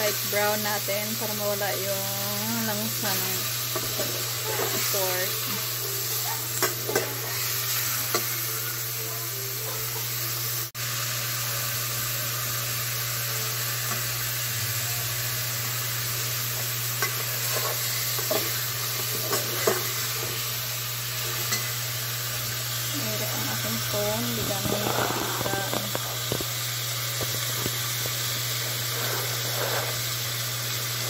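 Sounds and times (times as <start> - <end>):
meat sizzling in a pot: 0.0 - 31.0
metal spoon stirring and clicking: 6.5 - 7.4, 17.0 - 20.0.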